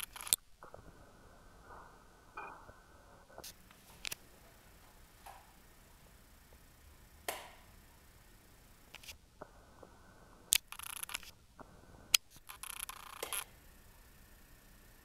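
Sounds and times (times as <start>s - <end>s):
scratchy crackling noise: 0.0s - 14.6s
light switch clicks: 7.2s - 7.7s.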